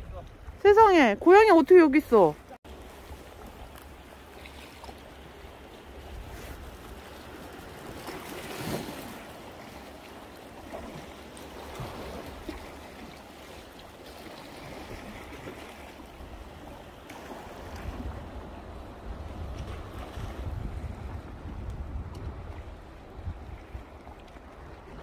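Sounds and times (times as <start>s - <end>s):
wind rumbling on microphone: 0.0s - 0.9s, 5.8s - 9.8s, 14.5s - 25.0s
sea washing against rocks: 2.1s - 25.0s.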